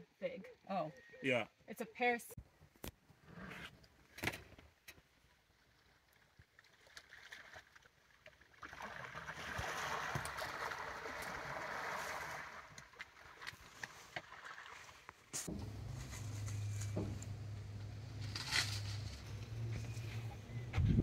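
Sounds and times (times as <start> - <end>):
water splashing: 5.5 - 19.6.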